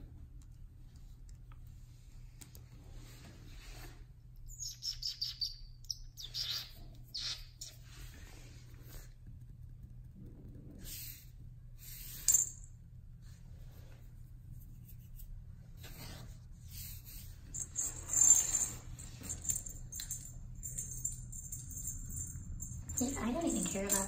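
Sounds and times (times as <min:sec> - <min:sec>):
steady low hum: 0:05.6 - 0:24.0
jingle bell rattling: 0:12.1 - 0:12.7, 0:17.5 - 0:24.0.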